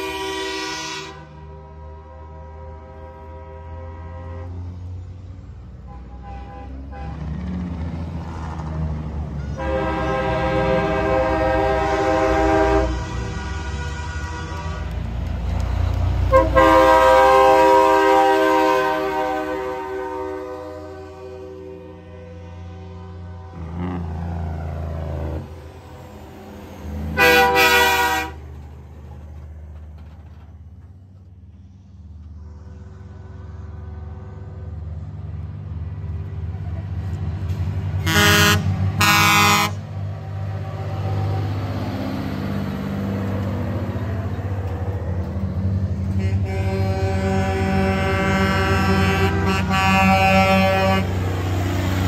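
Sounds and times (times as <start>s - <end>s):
truck air horn blasts: 0.0s - 4.8s, 5.8s - 7.3s, 9.4s - 15.1s, 16.2s - 24.0s, 27.1s - 28.5s, 38.0s - 39.9s, 45.8s - 51.4s
truck diesel engines: 0.0s - 52.0s.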